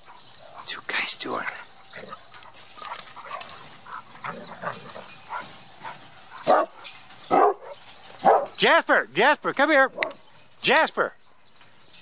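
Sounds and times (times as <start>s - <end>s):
dogs barking: 1.4s - 8.6s, 9.9s - 10.2s.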